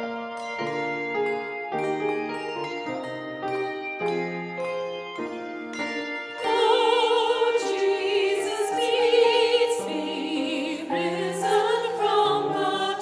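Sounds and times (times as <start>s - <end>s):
choir singing a hymn: 6.4s - 13.0s.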